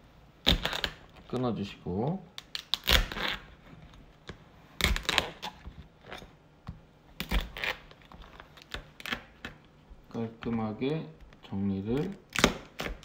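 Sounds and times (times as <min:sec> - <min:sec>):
knife cracking crab shell: 0:12.2 - 0:13.0.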